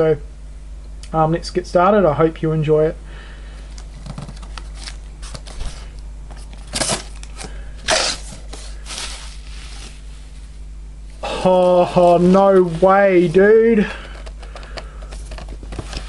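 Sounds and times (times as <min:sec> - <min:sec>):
plastic packing crinkling: 0:03.7 - 0:10.1.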